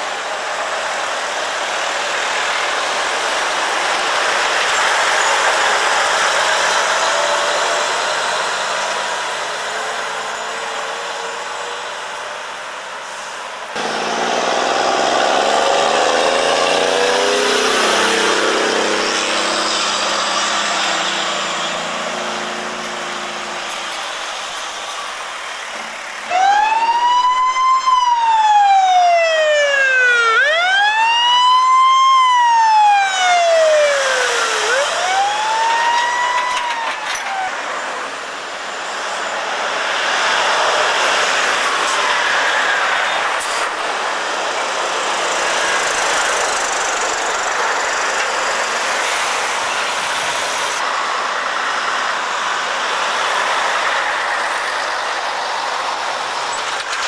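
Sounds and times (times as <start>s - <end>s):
emergency siren wailing: 0.0s - 56.5s
lorry engine passing: 13.8s - 23.7s.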